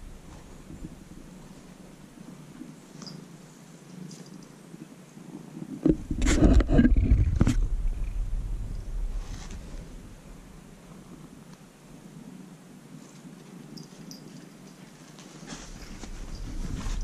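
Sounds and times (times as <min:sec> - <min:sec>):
cat purring: 0:06.6 - 0:17.0
fur rustling against camera: 0:08.5 - 0:10.3, 0:13.9 - 0:17.0.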